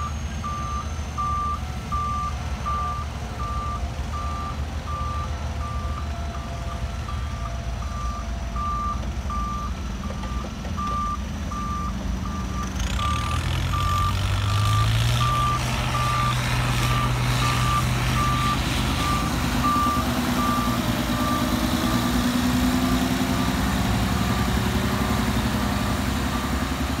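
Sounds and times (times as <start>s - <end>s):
diesel engines running: 0.0s - 27.0s
reversing alarm beeping: 0.0s - 27.0s
engine revving: 11.5s - 27.0s.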